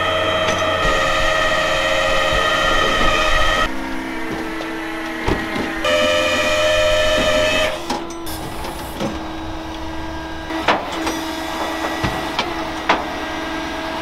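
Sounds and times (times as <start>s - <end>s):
hydraulic pump whining: 0.0s - 14.0s.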